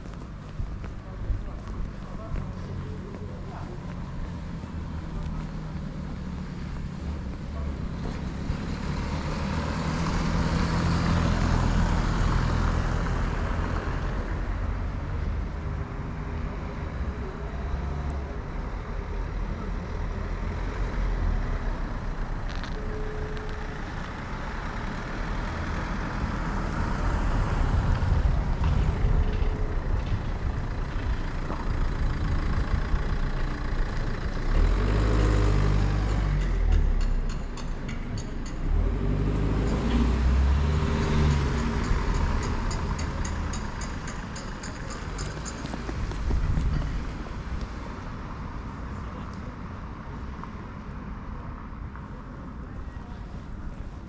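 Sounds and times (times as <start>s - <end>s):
vehicles passing: 0.0s - 54.0s.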